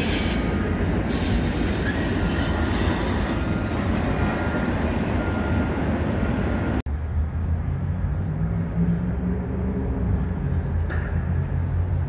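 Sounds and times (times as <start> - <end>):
train wheels rushing on rail: 0.0 - 6.8.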